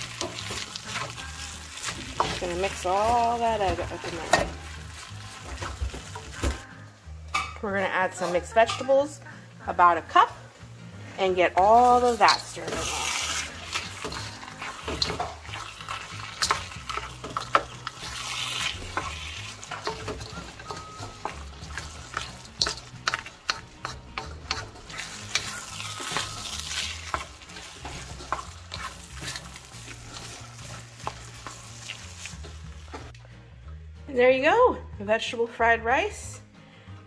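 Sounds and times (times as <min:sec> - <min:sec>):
rice sizzling in wok: 0:00.0 - 0:06.6, 0:11.5 - 0:33.1
spatula scraping wok: 0:00.0 - 0:06.6, 0:07.7 - 0:33.2.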